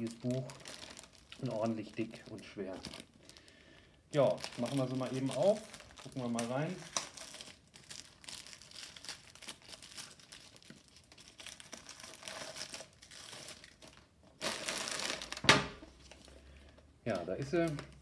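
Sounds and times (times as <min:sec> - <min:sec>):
plastic bags crinkling: 0:00.0 - 0:18.0.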